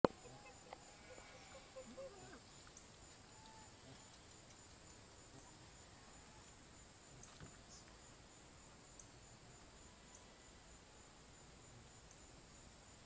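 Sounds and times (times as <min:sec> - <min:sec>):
crickets trilling: 0:00.0 - 0:13.0
faint ticks: 0:00.1 - 0:05.6, 0:06.2 - 0:08.0, 0:08.9 - 0:10.3, 0:12.0 - 0:12.4.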